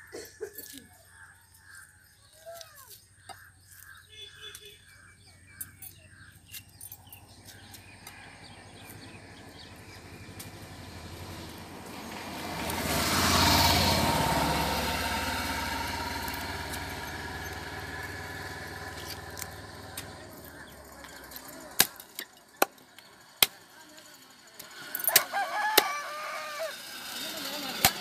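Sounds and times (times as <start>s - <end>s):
motor vehicle passing: 6.9s - 28.0s.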